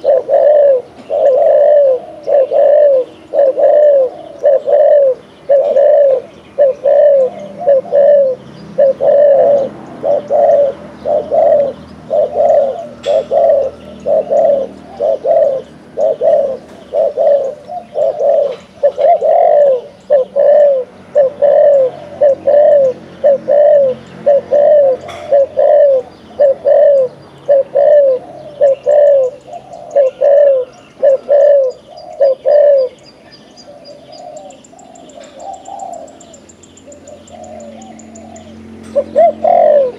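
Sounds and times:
dove cooing: 0.0 - 39.9
faint small birds chirping: 0.0 - 39.9.

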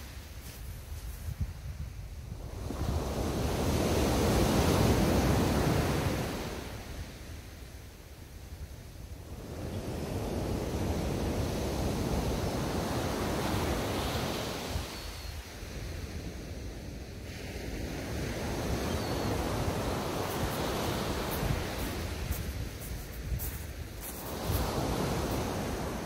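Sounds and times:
wind rumble on microphone: 0.0 - 7.1, 15.6 - 26.0
waves washing up shingle beach: 2.4 - 7.2, 9.3 - 16.4, 17.0 - 26.0.

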